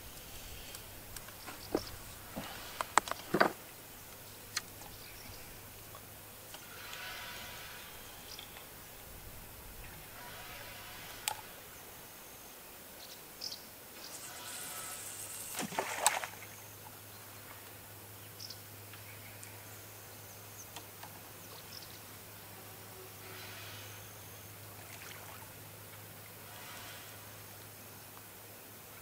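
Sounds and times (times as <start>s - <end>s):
fishing line hissing off reel: 14.0s - 16.6s.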